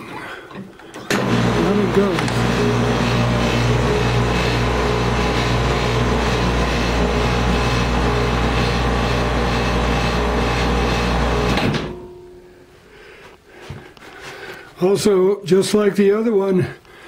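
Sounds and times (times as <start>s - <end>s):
electric motor humming: 1.1s - 11.9s.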